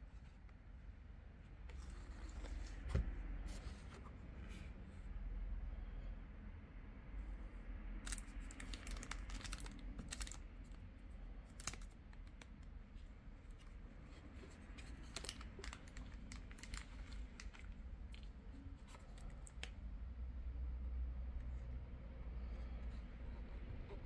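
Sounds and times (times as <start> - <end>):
plastic wrapping crinkling: 8.0 - 10.4, 14.4 - 19.7.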